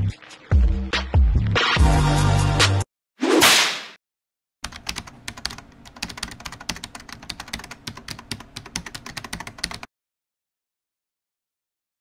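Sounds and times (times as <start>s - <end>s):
fast typing on keyboard: 4.6s - 9.9s.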